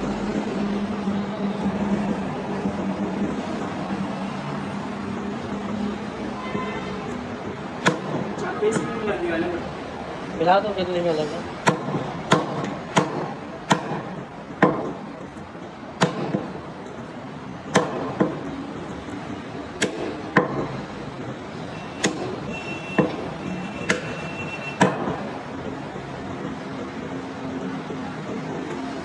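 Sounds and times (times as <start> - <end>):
cleaver chopping bone on wood: 7.8 - 8.3, 11.6 - 15.0, 16.0 - 16.5, 17.7 - 18.5, 19.8 - 20.7, 23.0 - 23.3, 24.8 - 25.2.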